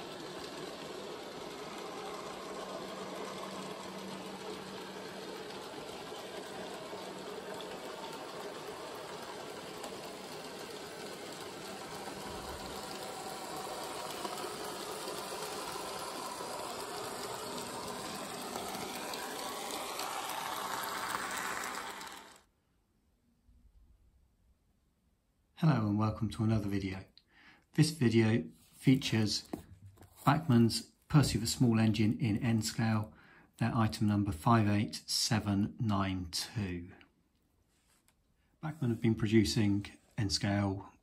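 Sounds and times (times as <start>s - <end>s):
model train motor whirring: 0.0s - 22.5s.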